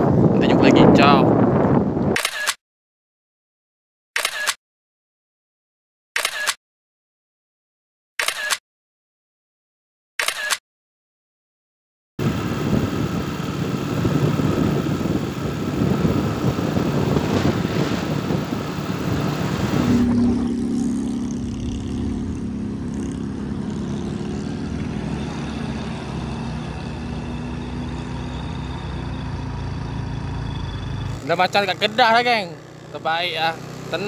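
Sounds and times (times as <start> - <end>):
wind rushing over microphone: 0.0 - 2.2, 12.2 - 26.8
scooter engine running: 12.2 - 27.9, 28.6 - 34.0.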